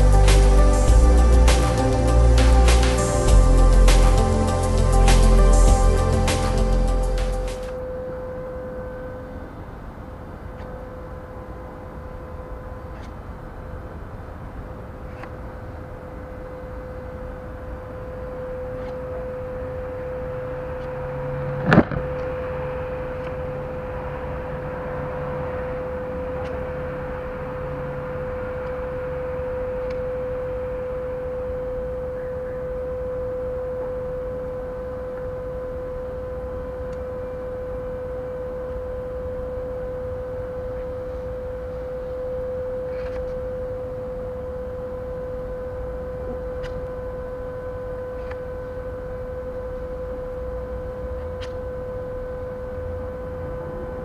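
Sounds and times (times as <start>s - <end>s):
low background rumble: 0.0s - 7.7s
steady hum: 0.0s - 54.0s.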